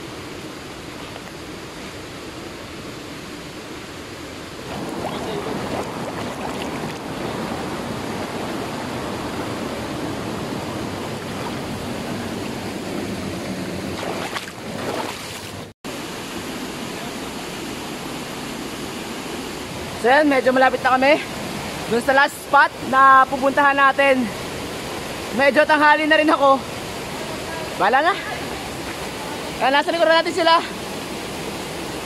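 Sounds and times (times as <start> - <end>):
stream rushing over stones: 0.1 - 32.0
splashing of wading people: 4.7 - 8.7, 13.9 - 15.7.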